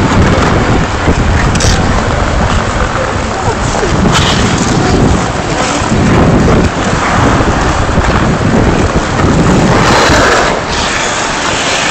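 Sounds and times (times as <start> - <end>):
loud rushing noise: 0.0 - 11.9.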